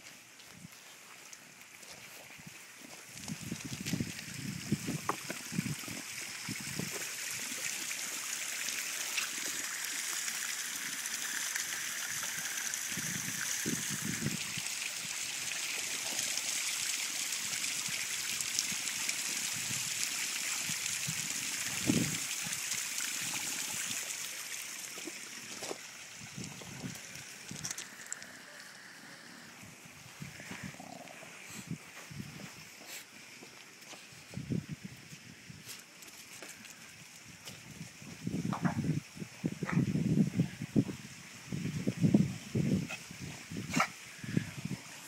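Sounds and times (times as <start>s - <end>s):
waterfall over rocks: 3.4s - 29.5s.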